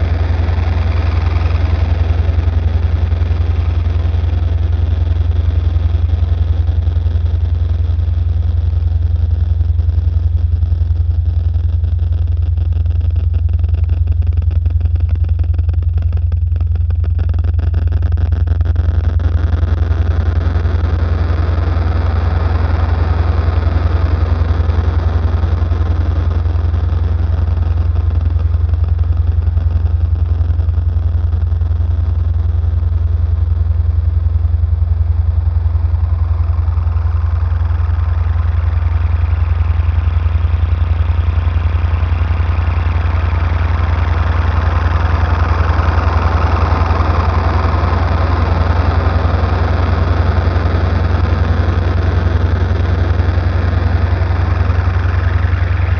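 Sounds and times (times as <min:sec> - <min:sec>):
noisy hiss: 0:00.0 - 0:10.3
low electronic hum: 0:00.0 - 0:55.9.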